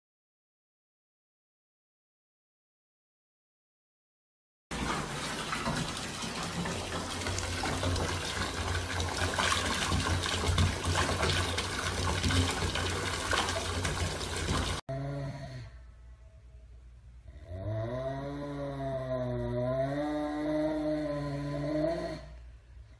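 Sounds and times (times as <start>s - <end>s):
tap water splashing into bathtub: 4.7s - 14.8s.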